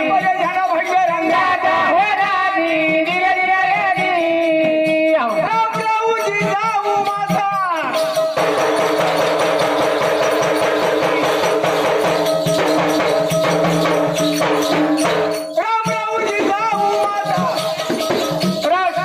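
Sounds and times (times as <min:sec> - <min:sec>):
dense percussion: 0:08.0 - 0:19.0.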